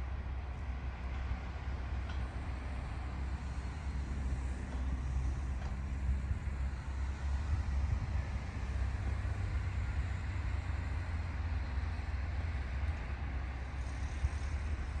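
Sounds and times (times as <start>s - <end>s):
wind buffeting microphone: 6.2s - 9.2s.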